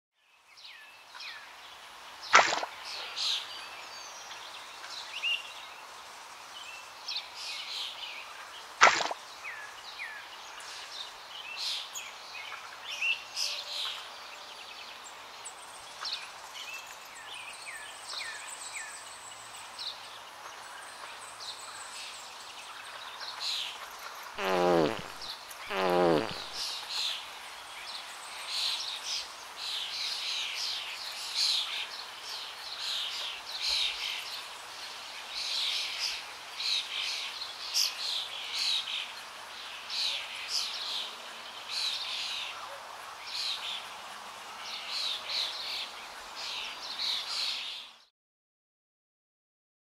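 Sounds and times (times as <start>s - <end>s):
outdoor ambience: 19.3s - 28.6s
birds chirping: 23.8s - 26.7s.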